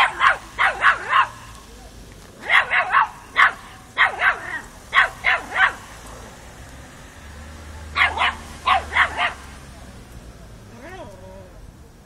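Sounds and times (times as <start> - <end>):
puppy yipping barks: 0.0 - 1.5, 2.4 - 5.9, 7.9 - 9.4.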